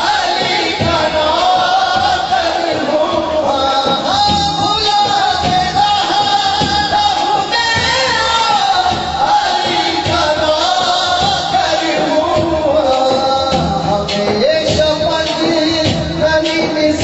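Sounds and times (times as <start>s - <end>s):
man singing through microphone: 0.0s - 17.0s.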